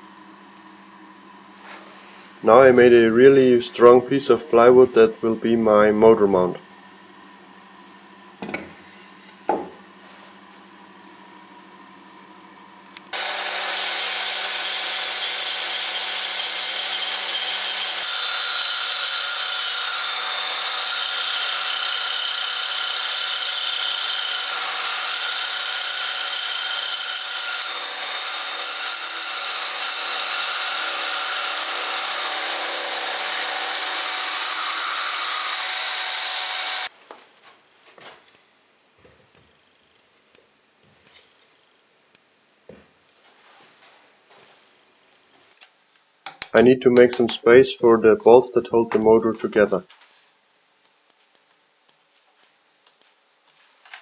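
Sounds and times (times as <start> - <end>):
bandsaw cutting wood: 13.1 - 36.9.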